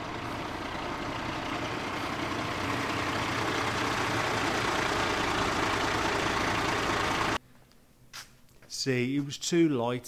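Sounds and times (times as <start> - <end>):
fire engine diesel engine running: 0.0 - 7.4.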